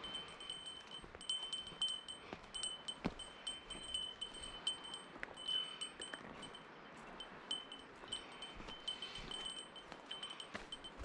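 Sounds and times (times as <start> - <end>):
small metal bell jingling: 0.0 - 11.0.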